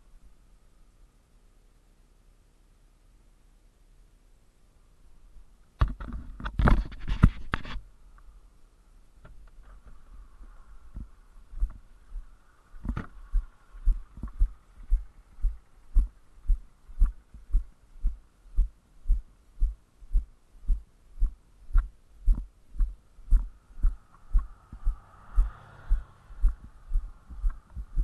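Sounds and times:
footsteps walking: 11.0 - 28.0.

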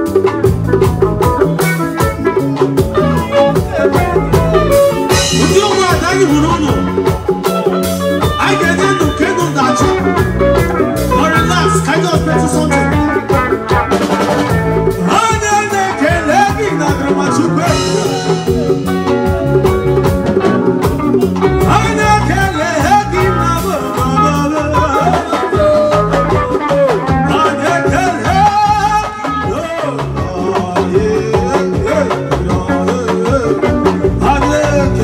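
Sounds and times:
bass guitar: 0.0 - 35.0
drum kit beat: 0.0 - 35.0
electric guitar: 0.0 - 35.0
keyboard: 0.0 - 35.0
man singing into microphone: 3.0 - 7.2, 8.2 - 13.5, 14.9 - 18.6, 21.5 - 35.0.

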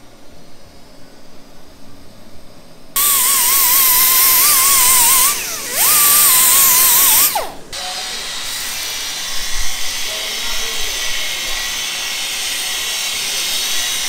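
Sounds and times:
air hissing: 3.0 - 14.0
pneumatic cut-off tool whining: 3.0 - 14.0.

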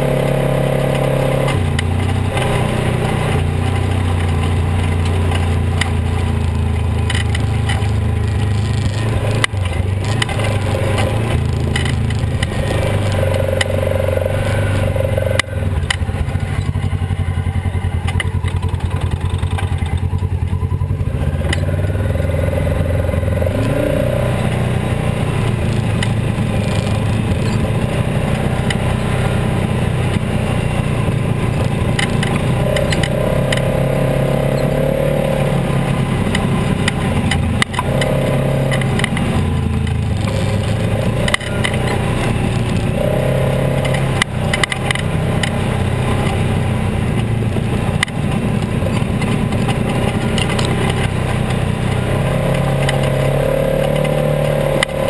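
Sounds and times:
off-road vehicle engine running: 0.0 - 55.0.

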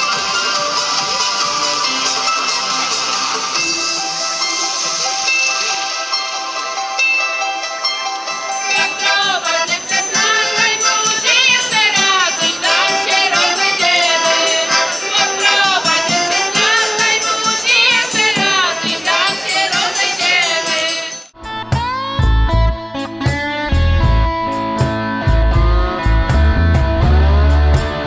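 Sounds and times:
folk group singing: 8.7 - 21.2.

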